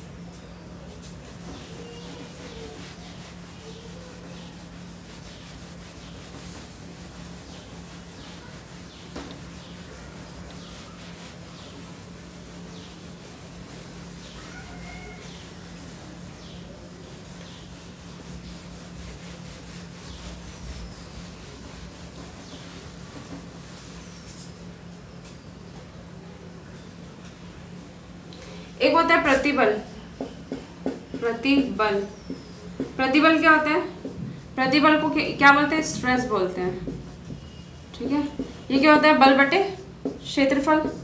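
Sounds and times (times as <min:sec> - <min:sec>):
duster scraping whiteboard: 0:00.3 - 0:24.8.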